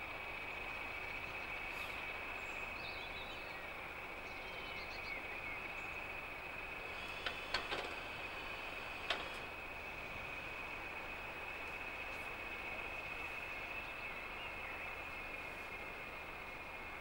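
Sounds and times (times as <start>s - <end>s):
diesel locomotives running: 0.0s - 17.0s
faint bird chirps: 0.4s - 6.2s.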